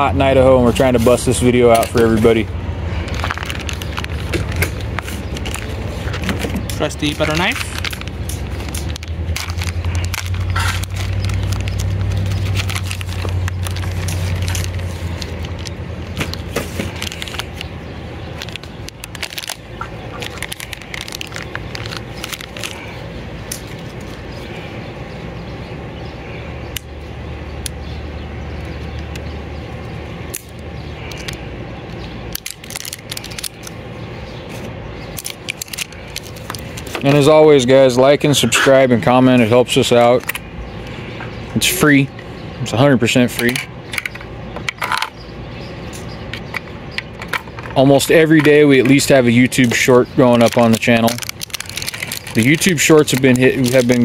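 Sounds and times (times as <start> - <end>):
plastic bag crinkling: 3.0 - 24.2, 32.3 - 33.9, 35.1 - 37.7, 48.0 - 54.0.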